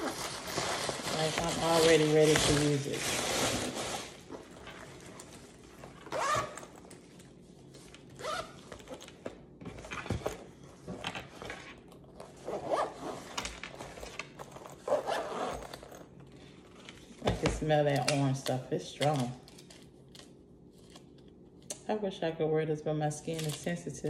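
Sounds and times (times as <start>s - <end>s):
fabric bag rustling: 0.0s - 9.0s
zipper being pulled shut: 6.0s - 6.8s, 12.4s - 13.4s, 14.8s - 15.9s.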